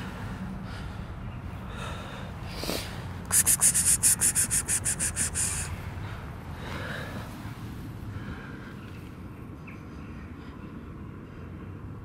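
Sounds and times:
person making short hissing sounds: 3.3 - 5.8.

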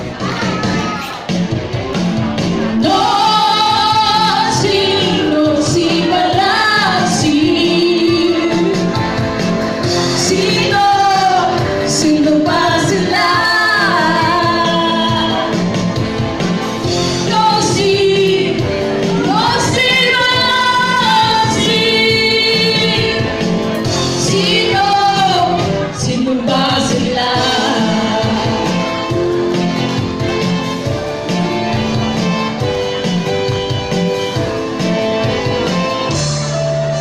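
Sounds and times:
accompanying music: 0.0 - 37.0
two women singing a duet: 2.7 - 15.8, 16.8 - 29.2.

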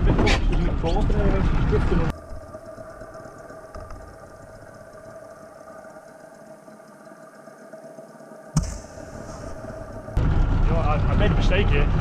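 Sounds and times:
faint whining tones: 0.6 - 12.0
low underwater hum: 0.8 - 12.0
faint ticks: 2.1 - 8.6.

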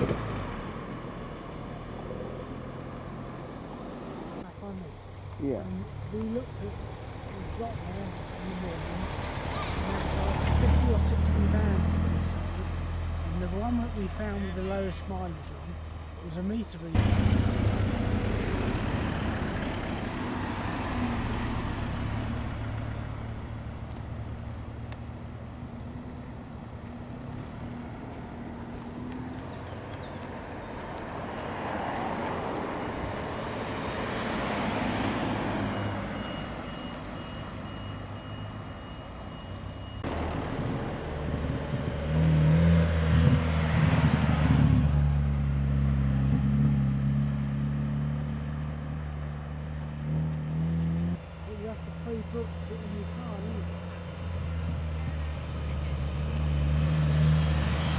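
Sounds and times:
cars driving past: 0.0 - 16.2, 16.8 - 57.9
deep car engine note: 17.0 - 20.1.

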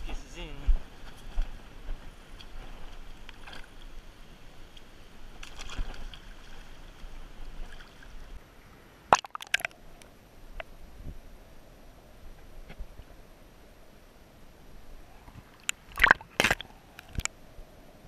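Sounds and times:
water sloshing in rock pool: 5.4 - 8.3, 9.1 - 9.8, 15.4 - 17.3
sharp splashes: 9.1 - 9.8, 15.5 - 17.3.

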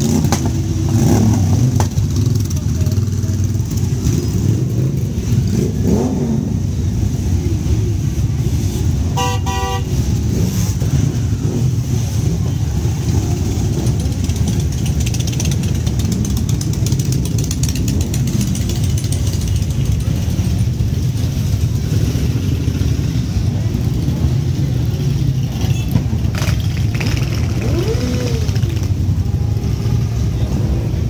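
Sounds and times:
motorcycle engines revving: 0.0 - 31.0
horn tooting: 9.0 - 10.2.

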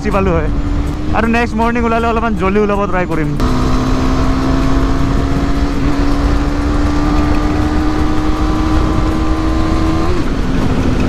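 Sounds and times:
road rumble: 0.0 - 11.0
wind: 0.0 - 11.0
motorcycle engine cruising: 3.1 - 11.0.

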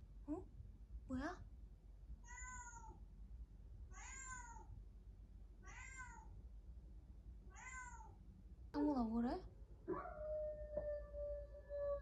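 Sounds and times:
faint cat meows: 2.2 - 3.0, 3.9 - 4.7, 5.6 - 6.3, 7.5 - 8.2.

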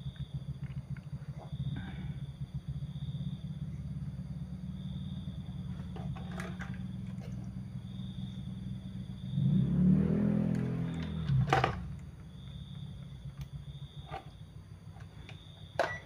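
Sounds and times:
low mechanical rumble: 0.0 - 16.0.

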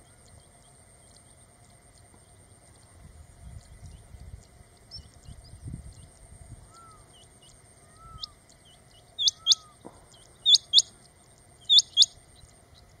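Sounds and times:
faint bird calls: 3.6 - 13.0
quail squeaky calls: 7.8 - 8.4, 9.2 - 11.0, 11.6 - 12.2.

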